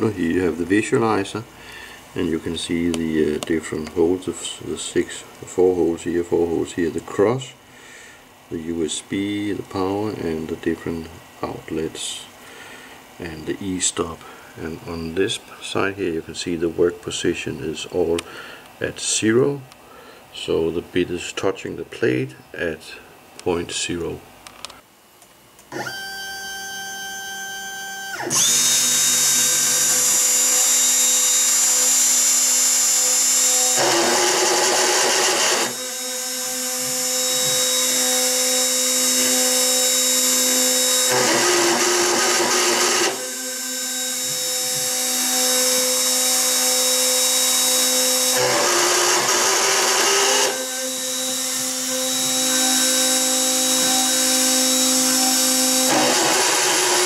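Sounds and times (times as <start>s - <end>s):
router spindle milling metal screech: 28.2s - 57.0s.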